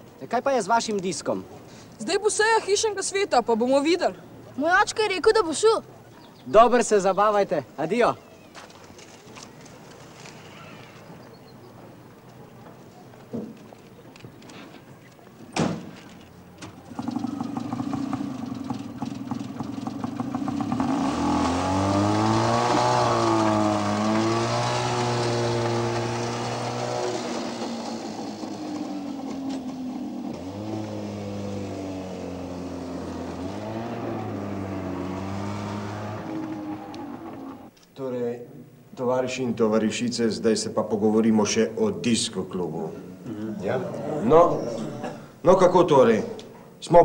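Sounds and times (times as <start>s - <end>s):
vintage car engine revving: 16.7s - 37.7s.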